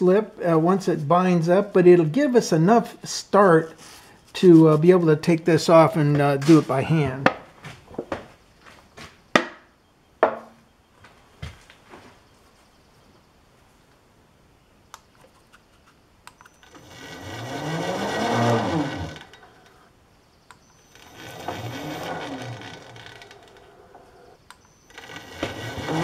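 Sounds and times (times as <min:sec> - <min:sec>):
milling machine spindle spinning: 0:16.5 - 0:19.8, 0:20.8 - 0:26.0
faint clicks: 0:20.4 - 0:21.1, 0:23.0 - 0:25.0.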